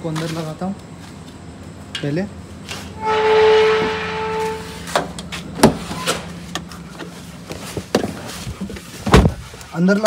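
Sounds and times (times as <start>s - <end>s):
steady electronic tone: 2.9s - 5.0s.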